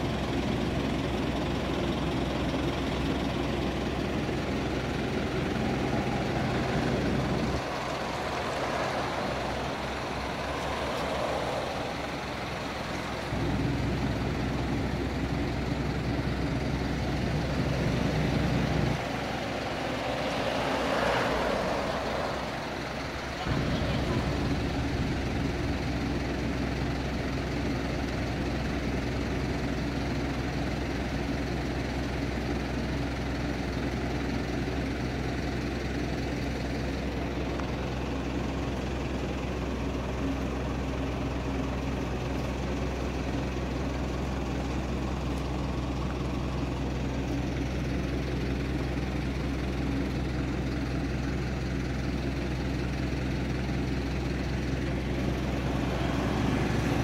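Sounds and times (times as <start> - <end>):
low mechanical drone: 0.0 - 28.8.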